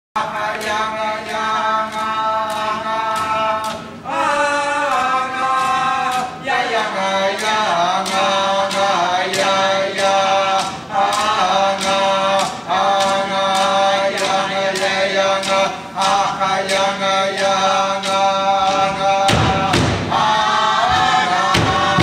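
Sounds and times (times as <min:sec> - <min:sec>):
voices chanting in unison: 0:00.2 - 0:22.0
frame drums beating: 0:00.3 - 0:22.0.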